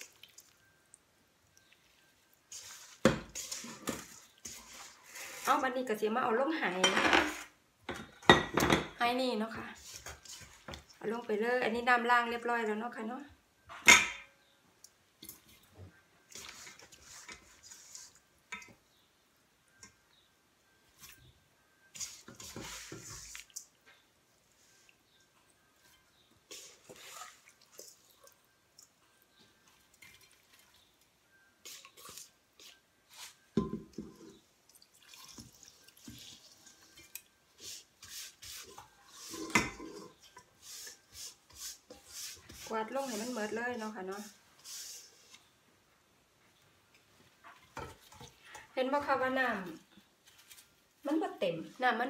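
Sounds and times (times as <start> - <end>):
wet squishing of fish: 0.0 - 0.6
scraping and rustling of fish: 1.6 - 5.8, 9.7 - 11.0, 15.5 - 18.3, 21.9 - 23.8, 25.8 - 28.5, 29.6 - 45.6, 49.6 - 51.0.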